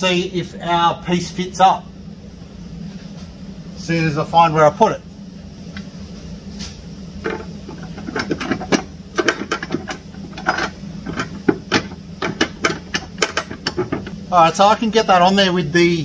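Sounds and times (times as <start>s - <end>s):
steady low hum: 0.0s - 16.0s
metal bracket clanking and scraping: 7.2s - 14.2s.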